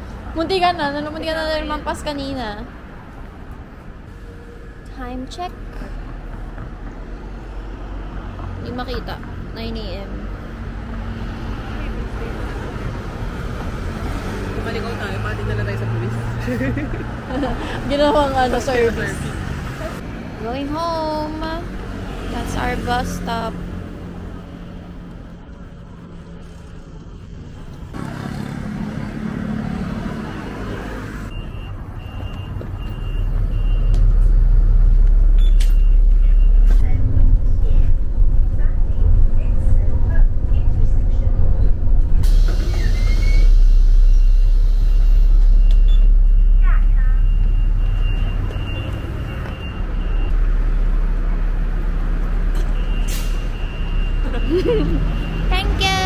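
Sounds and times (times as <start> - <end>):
bus engine rumble: 0.0 - 56.0
street traffic noise: 0.0 - 56.0
short electronic beeps: 31.3 - 34.0, 35.3 - 36.9, 42.8 - 50.4, 52.6 - 56.0.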